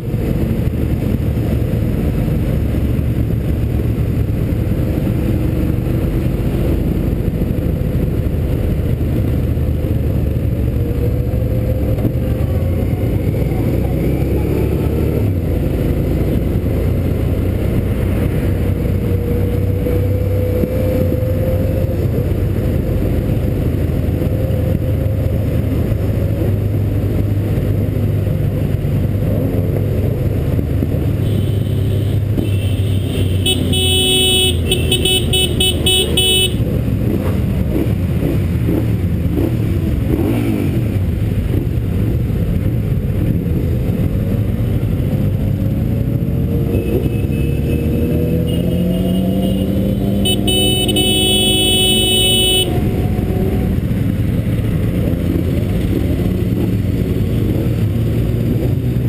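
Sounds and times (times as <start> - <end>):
motorcycle engine cruising: 0.0 - 59.0
horn tooting: 31.2 - 36.7, 46.8 - 52.9.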